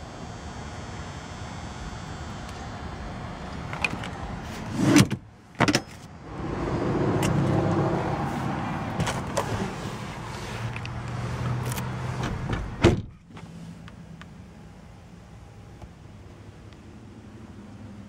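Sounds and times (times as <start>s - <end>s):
car seat clunk: 9.0s - 9.8s, 12.2s - 13.5s.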